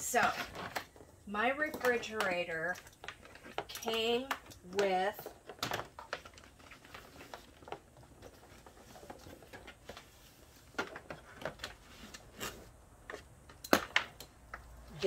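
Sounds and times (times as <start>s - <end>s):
plastic plugs clicking and knocking: 1.6s - 6.6s.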